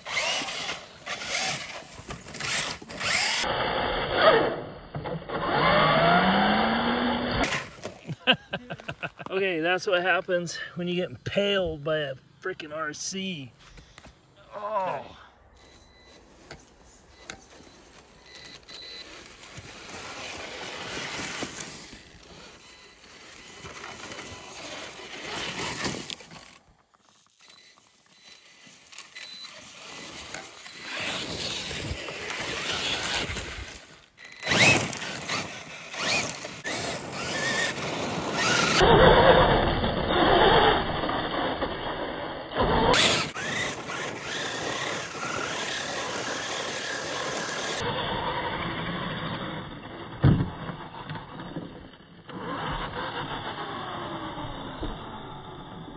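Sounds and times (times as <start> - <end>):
tyres churning dirt and gravel: 0.0 - 4.2, 15.6 - 54.4
electric motor whining: 0.0 - 7.9, 27.3 - 49.8.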